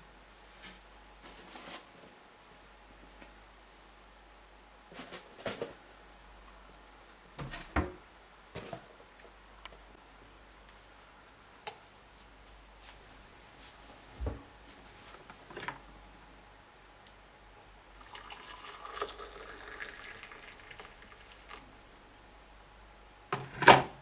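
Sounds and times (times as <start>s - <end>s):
water pouring into a mug: 18.0s - 21.6s.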